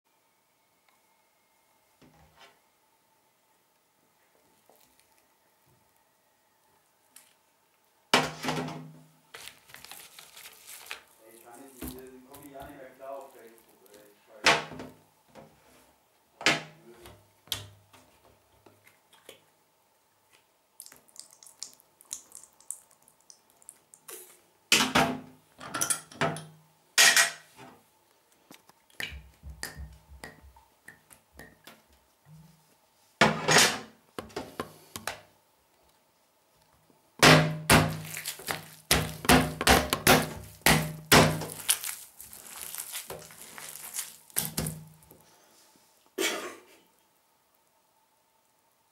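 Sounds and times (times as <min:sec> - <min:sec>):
wet squelching: 0:09.4 - 0:14.1, 0:20.8 - 0:24.4, 0:37.8 - 0:45.1
hand smashing wet sandwich: 0:09.4 - 0:14.7, 0:37.2 - 0:45.2.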